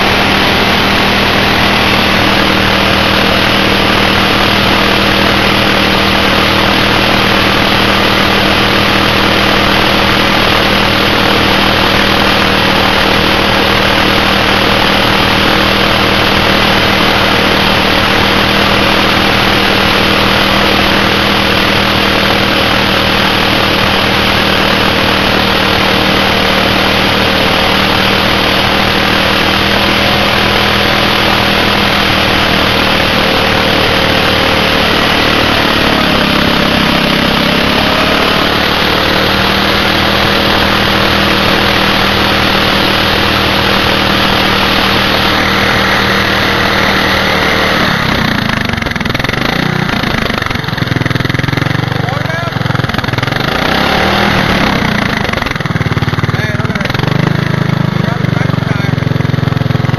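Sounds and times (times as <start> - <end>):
small engine running hard: 0.0 - 59.9.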